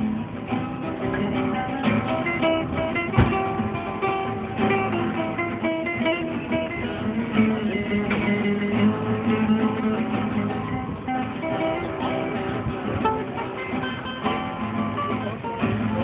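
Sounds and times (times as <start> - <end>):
acoustic guitars playing: 0.0 - 16.0
sharp thump: 3.1 - 3.7.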